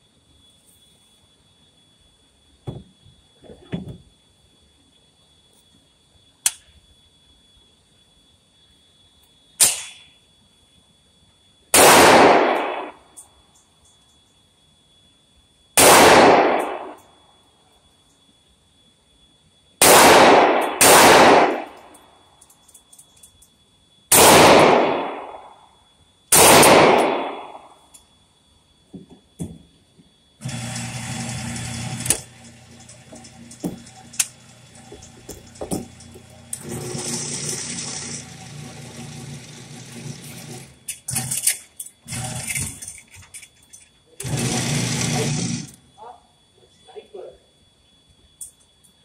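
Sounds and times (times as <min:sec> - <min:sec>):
quieter sharp cracks: 0:09.6 - 0:10.1, 0:11.8 - 0:13.1, 0:15.8 - 0:17.0, 0:19.8 - 0:22.1, 0:26.3 - 0:27.7
gunshots echoing indoors: 0:11.7 - 0:13.1, 0:15.8 - 0:17.0, 0:19.8 - 0:22.0, 0:24.1 - 0:25.7, 0:26.3 - 0:27.9.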